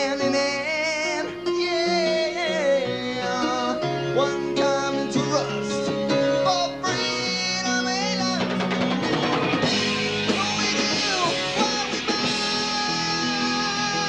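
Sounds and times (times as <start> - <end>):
person singing: 0.0 - 14.0
rock band playing live: 3.7 - 14.0.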